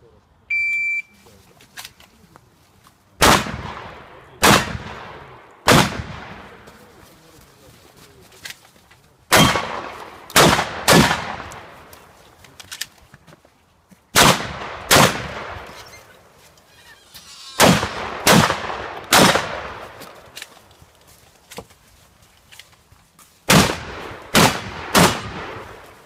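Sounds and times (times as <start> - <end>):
shotgun shots echoing: 3.2 - 6.7, 9.3 - 11.9, 14.2 - 15.8, 17.6 - 20.4, 23.5 - 25.9.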